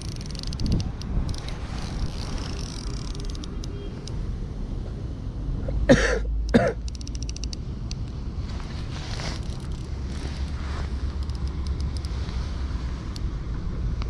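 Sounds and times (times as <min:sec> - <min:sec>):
wind rumble on microphone: 0:00.0 - 0:05.5
man coughing: 0:05.8 - 0:06.8
faint clicks: 0:09.5 - 0:12.4.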